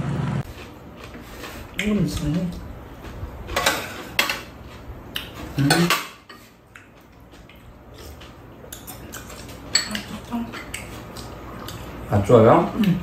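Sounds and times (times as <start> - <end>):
utensils clinking against bowls: 3.5 - 4.6, 5.3 - 6.5, 8.1 - 11.0.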